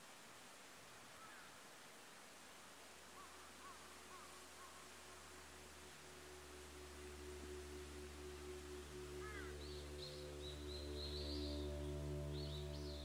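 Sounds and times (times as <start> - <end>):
light hiss: 0.0 - 13.0
low ambient drone tones: 5.0 - 13.0.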